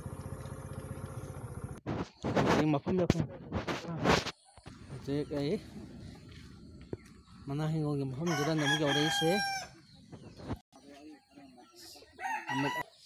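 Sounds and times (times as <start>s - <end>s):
rooster crowing: 8.2s - 9.8s, 12.2s - 12.9s.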